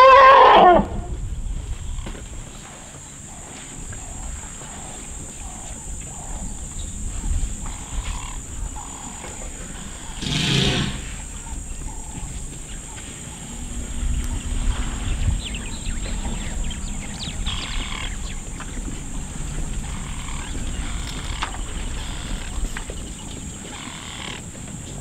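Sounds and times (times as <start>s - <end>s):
elephant bellowing: 0.0s - 1.2s, 7.6s - 12.1s.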